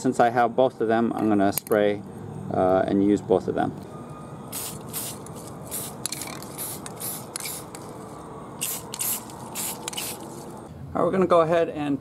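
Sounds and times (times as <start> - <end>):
spray paint can hissing: 4.5 - 7.9, 8.6 - 10.6.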